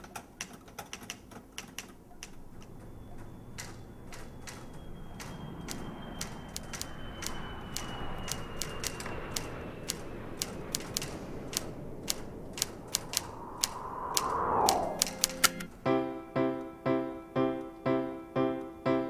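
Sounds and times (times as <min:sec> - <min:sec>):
typewriter keys clacking: 0:03.6 - 0:13.2.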